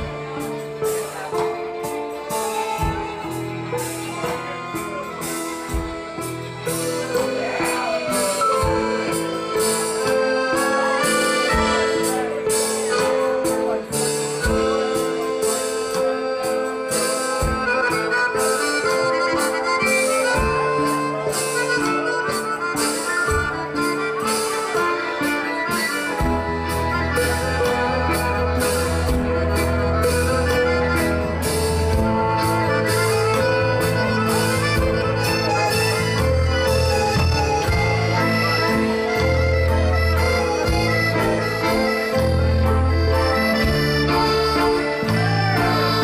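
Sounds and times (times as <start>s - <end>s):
live band playing: 0.0s - 46.0s
bass line: 26.1s - 46.0s.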